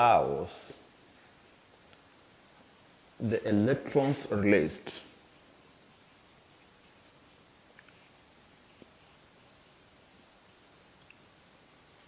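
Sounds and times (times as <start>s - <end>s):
marker scratching on whiteboard: 4.9s - 11.3s.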